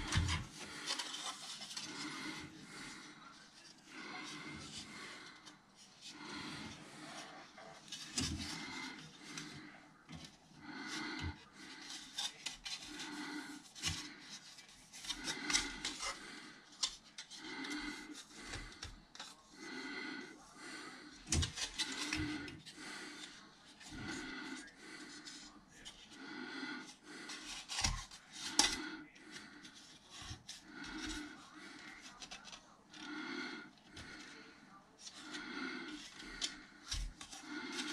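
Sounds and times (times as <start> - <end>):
soft regular breathing: 0.0 - 37.9
plastic parts clicking and rubbing: 35.9 - 37.9.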